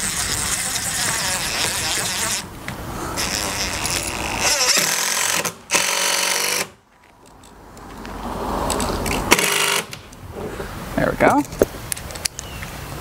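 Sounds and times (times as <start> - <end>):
impact driver driving screws into wood: 3.2 - 6.8, 9.1 - 10.0.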